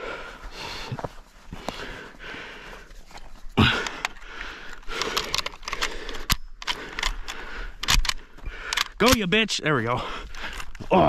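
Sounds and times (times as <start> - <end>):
heavy breathing: 0.0 - 9.0, 9.7 - 11.0
small clicks and rattles: 3.7 - 9.2.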